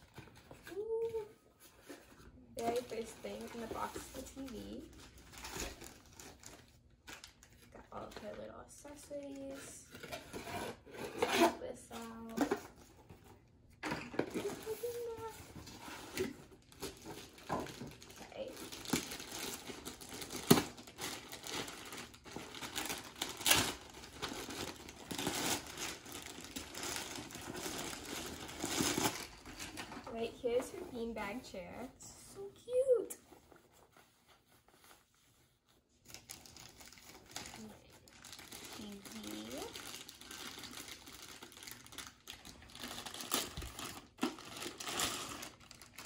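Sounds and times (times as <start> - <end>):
plastic bag crinkling: 2.6 - 10.4, 14.0 - 31.4, 36.0 - 46.0.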